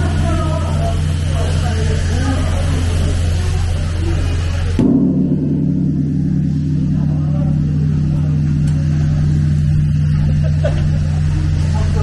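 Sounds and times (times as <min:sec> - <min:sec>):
large bell ringing: 0:04.8 - 0:12.0.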